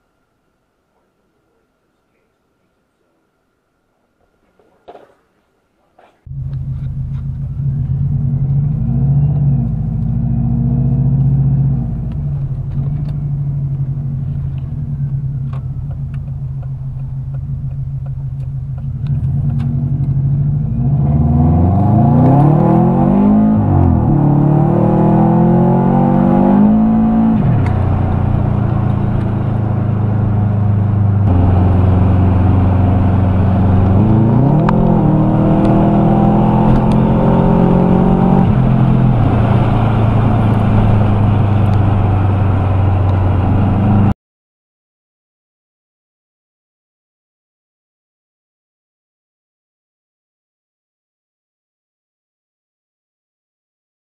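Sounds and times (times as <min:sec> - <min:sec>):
car engine accelerating hard: 0:06.2 - 0:44.2.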